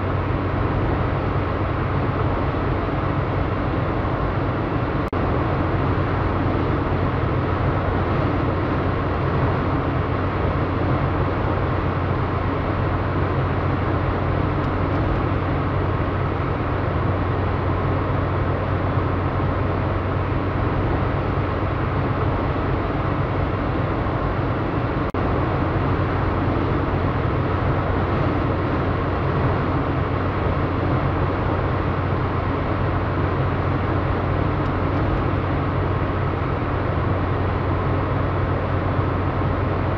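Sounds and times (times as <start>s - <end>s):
low engine hum: 0.0s - 39.9s
tyre and wind road noise: 0.0s - 39.9s.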